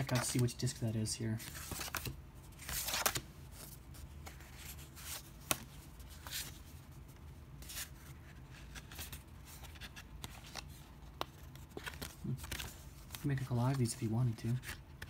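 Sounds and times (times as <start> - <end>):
cards sliding and rustling: 0.0 - 0.7, 1.3 - 15.0.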